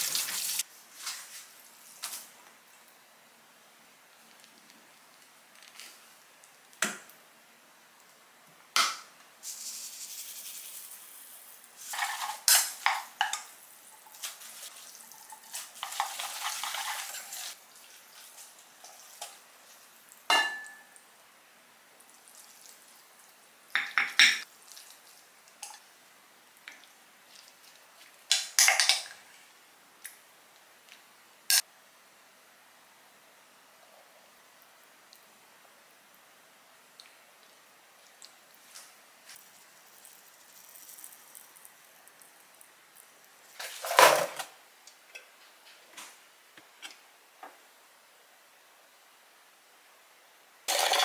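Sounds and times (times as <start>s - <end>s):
dishes and utensils clinking: 20.3s - 21.0s.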